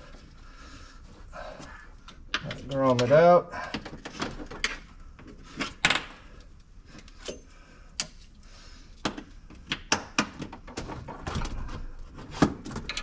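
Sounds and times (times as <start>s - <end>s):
sharp clicks and light knocks: 2.0s - 4.9s.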